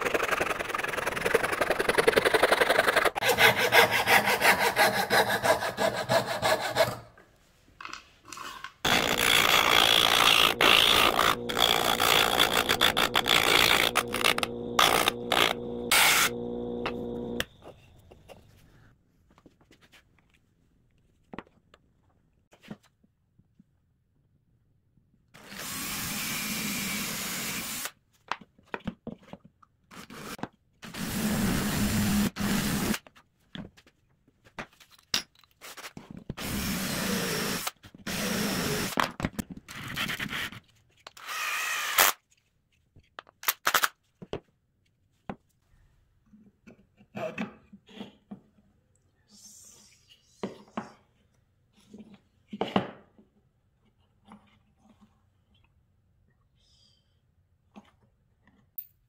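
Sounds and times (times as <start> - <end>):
cordless drill boring into wood: 8.9 - 17.4, 25.4 - 27.9, 30.2 - 33.0, 36.4 - 39.0, 41.2 - 42.2.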